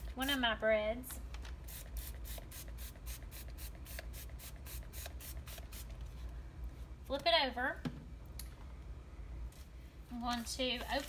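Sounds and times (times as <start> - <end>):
low steady hum: 0.0 - 11.0
spray bottle hissing sprays: 1.7 - 6.0.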